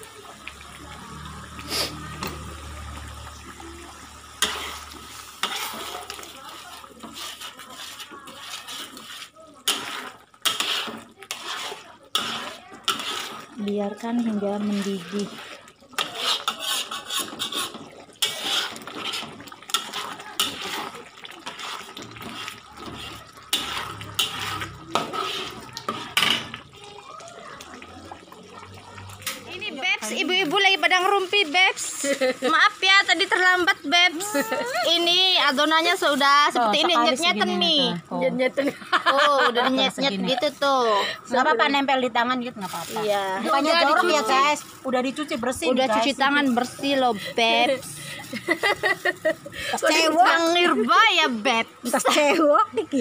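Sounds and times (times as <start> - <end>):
liquid sloshing in a wok: 0.0 - 53.0
spoon scraping and knocking pan: 4.3 - 6.3, 7.0 - 13.6, 16.0 - 26.6.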